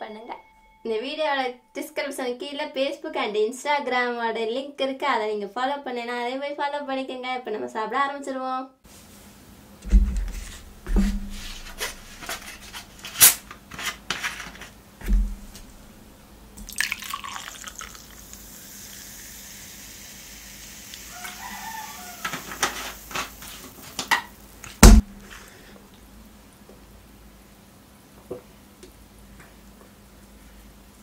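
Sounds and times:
plastic bottle being handled: 9.8 - 16.0
fizzing soda pouring: 16.6 - 25.6.

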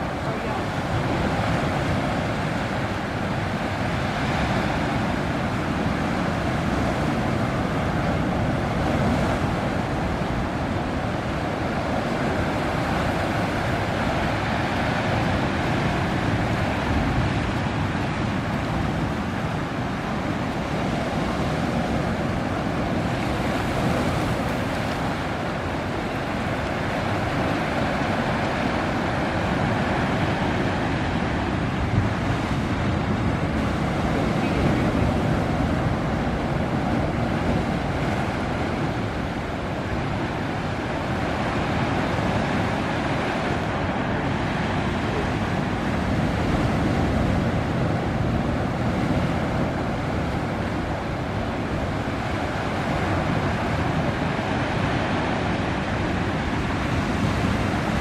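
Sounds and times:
small waves on sea: 0.0 - 58.0
wind: 0.0 - 58.0
wind buffeting microphone: 0.0 - 58.0.

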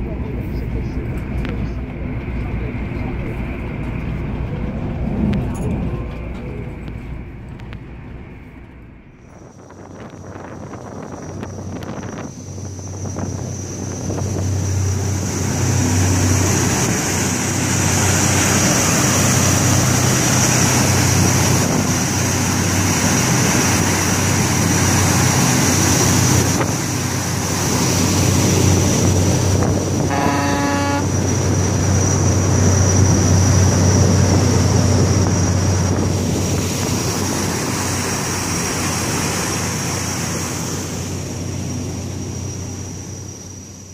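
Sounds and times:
churning wake water: 0.0 - 43.9
low engine drone with whine: 0.0 - 43.9
rushing wind: 0.0 - 43.9
boat horn: 29.7 - 31.4.

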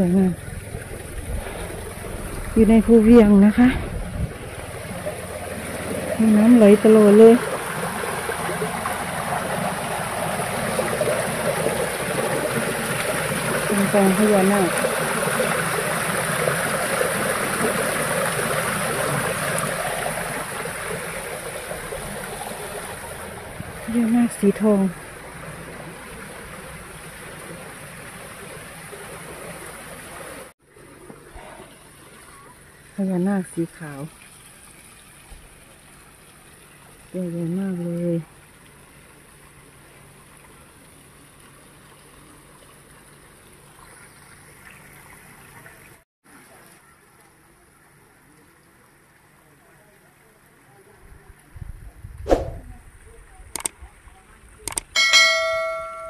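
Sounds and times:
water trickling down steps: 0.0 - 30.5.

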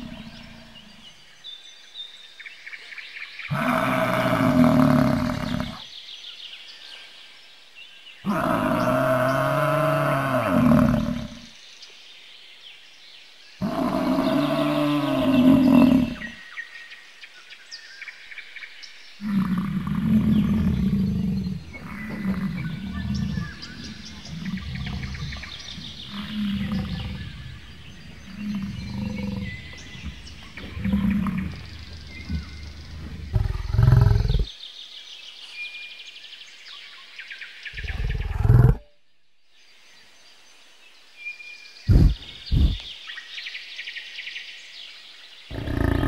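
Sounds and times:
bison bellowing: 19.2 - 34.5.

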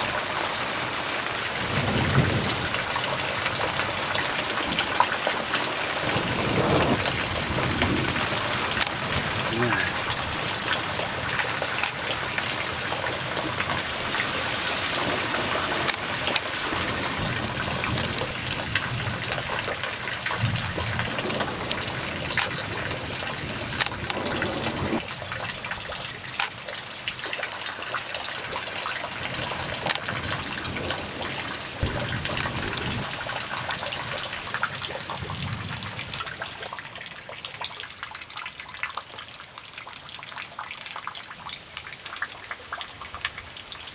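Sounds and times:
steady rain hiss: 0.0 - 38.4, 39.2 - 43.9
sharp raindrops striking: 0.0 - 43.9.

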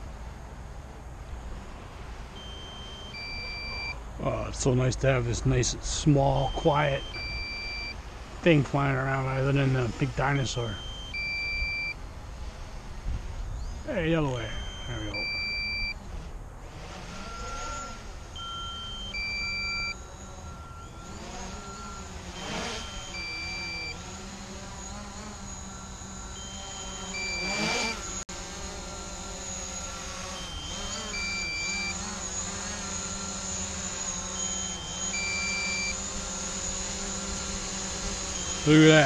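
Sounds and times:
drone propellers buzzing: 0.0 - 4.2, 5.2 - 39.0
short beeps: 2.4 - 4.0, 6.2 - 8.0, 10.2 - 12.0, 13.9 - 16.0, 17.2 - 37.5, 38.2 - 39.0.

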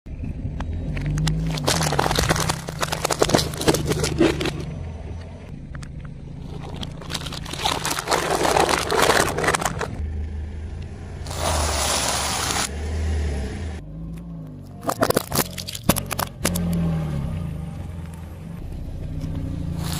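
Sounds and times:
car engine humming: 0.1 - 19.9
tyre crushing plastic: 1.2 - 4.7, 6.5 - 10.0.

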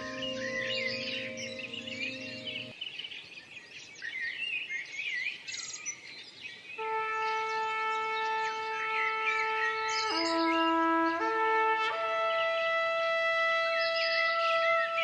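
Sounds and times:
sustained music chord: 0.0 - 2.7
songbirds singing and chirping: 0.0 - 11.3.

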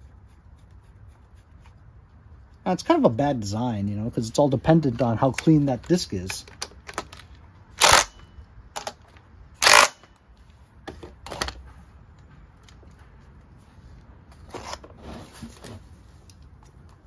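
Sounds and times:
impact driver whirring: 7.8 - 8.2, 9.6 - 10.0.

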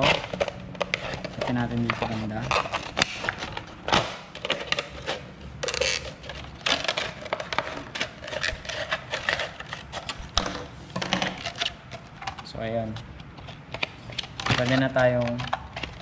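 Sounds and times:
plastic crackling: 0.0 - 16.0.

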